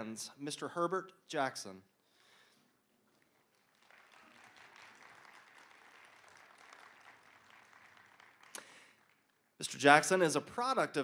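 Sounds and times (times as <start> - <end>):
faint audience applause: 3.1 - 9.6.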